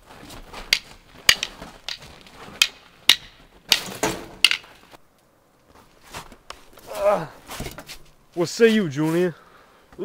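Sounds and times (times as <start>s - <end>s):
wooden sticks clacking together: 0.6s - 4.9s.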